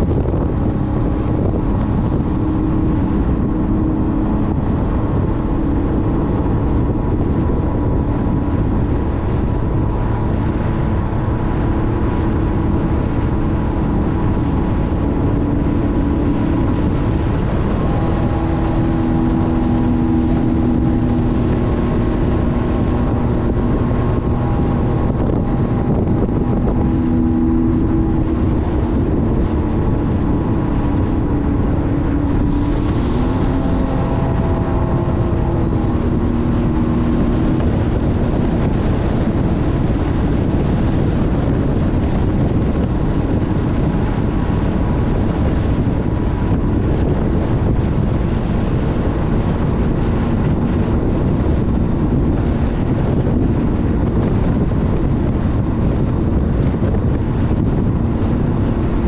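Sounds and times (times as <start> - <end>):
water rushing past: 0.0 - 59.0
watercraft engine droning: 0.0 - 59.0
wind buffeting microphone: 0.0 - 59.0.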